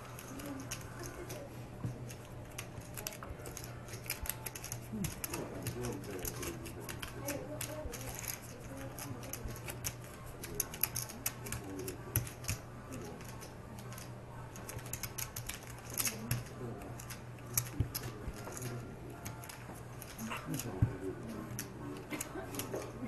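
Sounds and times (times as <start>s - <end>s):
cards being shuffled: 0.0s - 23.0s
low room hum: 0.0s - 23.0s
poker chips clicking: 2.1s - 20.7s.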